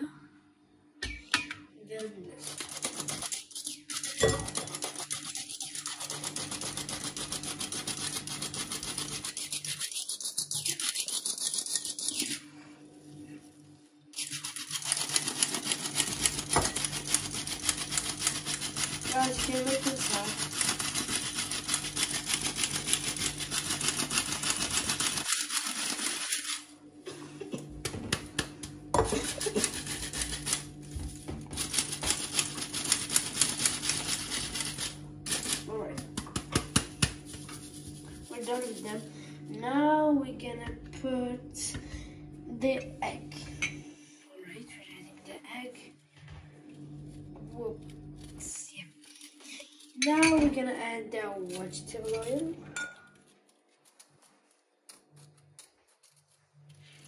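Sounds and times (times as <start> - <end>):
flour sifter rasping: 14.2 - 26.7, 29.0 - 35.7, 36.4 - 39.1.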